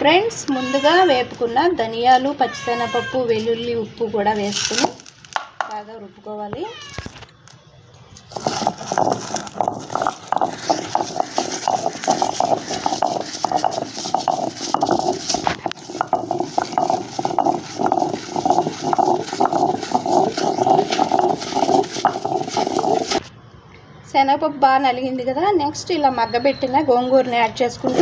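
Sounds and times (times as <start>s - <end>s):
stone pestle grinding in mortar: 4.6s - 5.1s, 8.3s - 23.3s.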